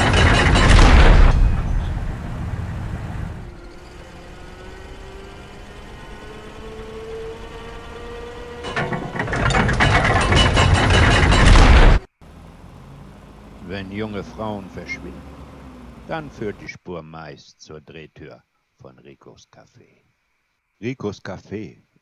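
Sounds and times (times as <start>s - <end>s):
mechanical gate ratcheting rattle: 0.0s - 1.4s, 8.4s - 12.0s
faint vehicle engine: 0.0s - 16.8s.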